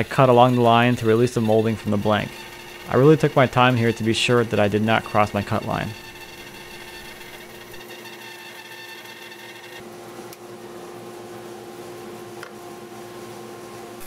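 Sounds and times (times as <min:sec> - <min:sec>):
bandsaw cutting wood: 0:00.0 - 0:09.8.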